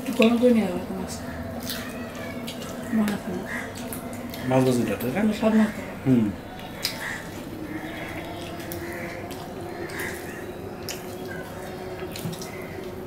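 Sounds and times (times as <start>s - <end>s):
faint steady hum: 0.0s - 13.0s
fingers mixing food on steel plates: 0.0s - 13.0s
wet chewing and mouth smacks: 1.6s - 5.1s, 6.5s - 13.0s.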